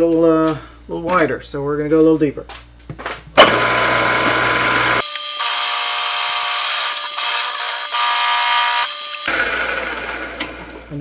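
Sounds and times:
end mill cutting steel: 0:03.4 - 0:10.8
high ringing whine: 0:05.0 - 0:09.3.

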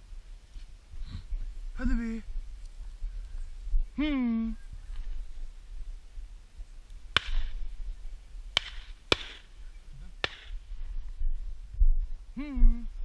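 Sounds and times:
low wind rumble: 0:00.0 - 0:13.0
sharp cracks with hiss: 0:06.9 - 0:07.7, 0:08.5 - 0:09.6, 0:10.2 - 0:10.7.

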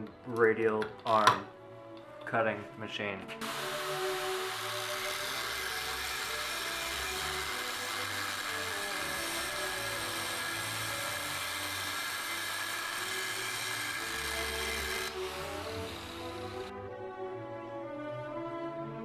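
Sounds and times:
angle grinder cutting steel: 0:03.4 - 0:16.7.

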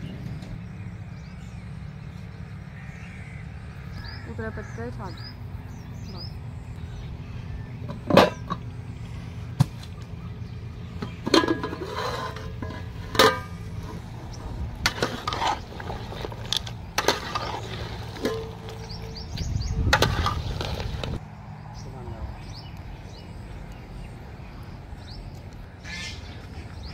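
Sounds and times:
metal lid and ladle clinking on pot: 0:11.1 - 0:14.0, 0:17.0 - 0:19.1.

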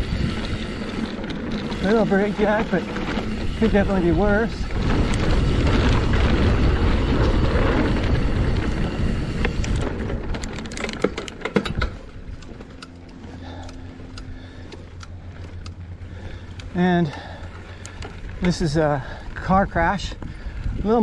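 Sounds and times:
wind noise: 0:00.0 - 0:12.6, 0:18.0 - 0:21.0
bike tyre rumble on dirt: 0:00.0 - 0:21.0
sharp knocks and rattles: 0:09.4 - 0:12.8.

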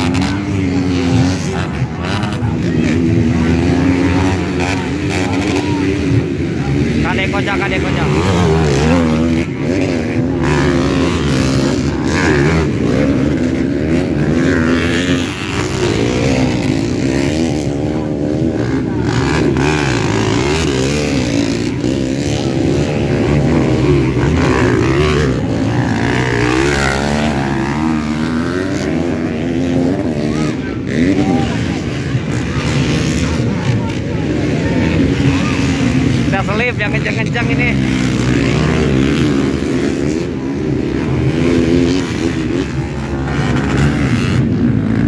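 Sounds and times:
motocross bikes revving past: 0:00.0 - 0:45.0.

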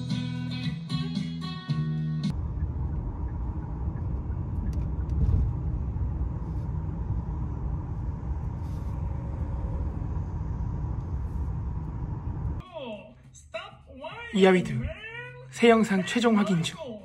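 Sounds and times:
car road noise rumble: 0:02.3 - 0:12.6.

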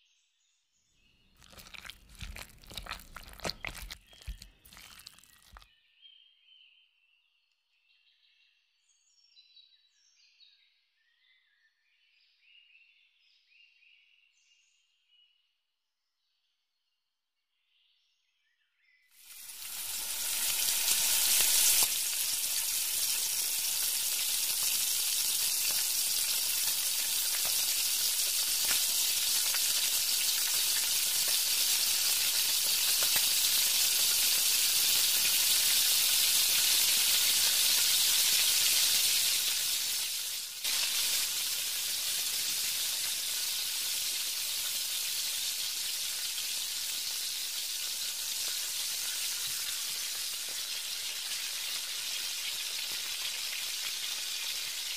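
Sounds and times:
food deep-frying in hot oil: 0:01.4 - 0:05.7, 0:19.2 - 0:54.9.

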